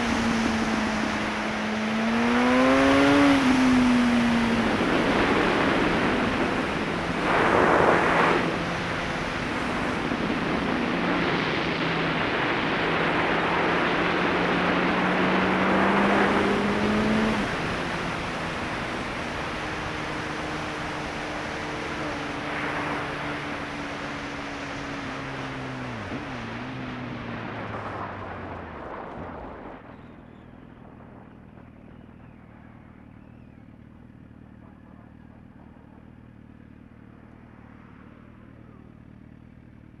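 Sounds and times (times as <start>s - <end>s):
motorcycle engine running: 0.0s - 40.0s
wind on microphone: 2.2s - 19.9s.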